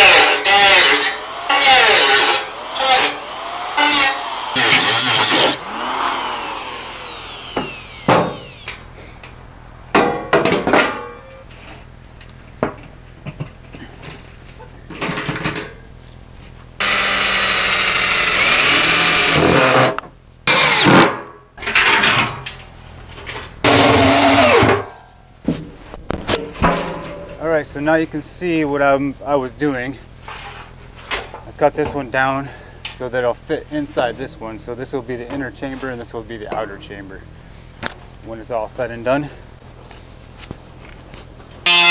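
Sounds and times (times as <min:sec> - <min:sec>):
angle grinder cutting steel: 0:00.0 - 0:08.9, 0:16.8 - 0:19.8, 0:23.7 - 0:24.7, 0:41.7 - 0:41.9.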